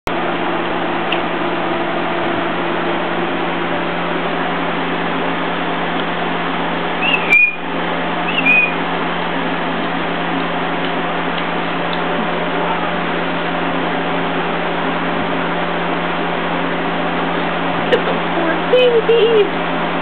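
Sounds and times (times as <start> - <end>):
short high squeaks: 7.0 - 7.6, 8.3 - 8.8.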